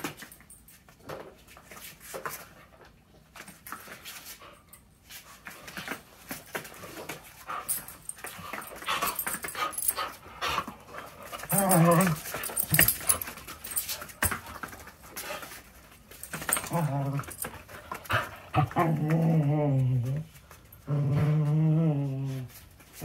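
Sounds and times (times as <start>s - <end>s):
dogs play-wrestling: 0.0s - 23.0s
dogs panting: 7.4s - 18.7s.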